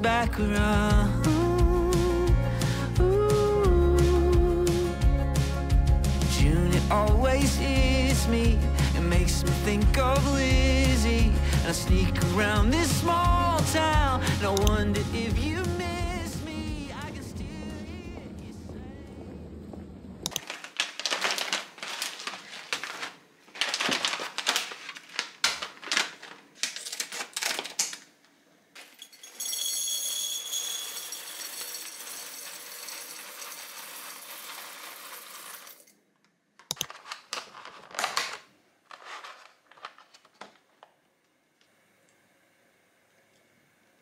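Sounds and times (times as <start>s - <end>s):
irregular clicking and clattering: 19.7s - 28.1s
coffee beans pouring into glass jar: 29.0s - 35.9s.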